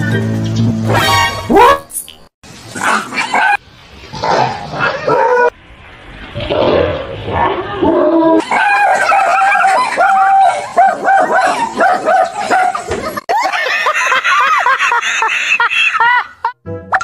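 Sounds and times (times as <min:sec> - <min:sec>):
dog barking: 0:08.4 - 0:12.9
people laughing hard: 0:08.4 - 0:16.6.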